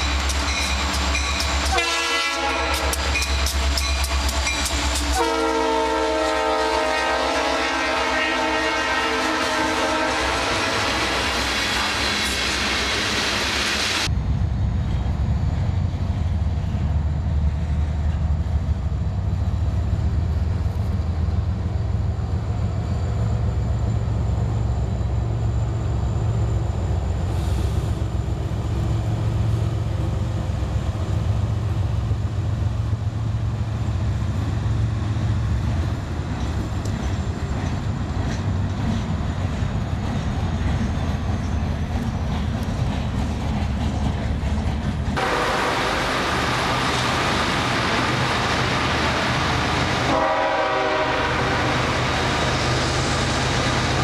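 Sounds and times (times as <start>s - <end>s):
freight train rumbling past: 0.0s - 54.0s
locomotive air horn: 1.6s - 3.8s, 5.0s - 11.5s, 45.2s - 46.8s, 50.0s - 52.3s.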